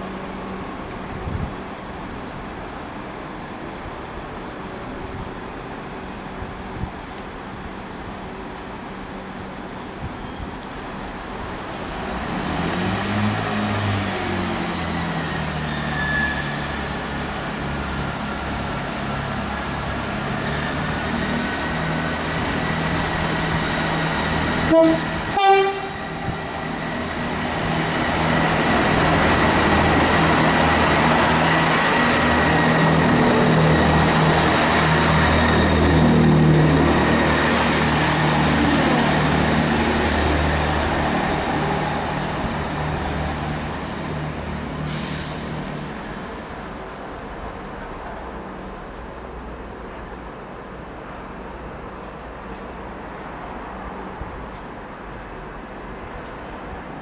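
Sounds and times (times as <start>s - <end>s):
diesel train engine droning: 0.0s - 57.0s
train horn two notes: 24.6s - 26.1s.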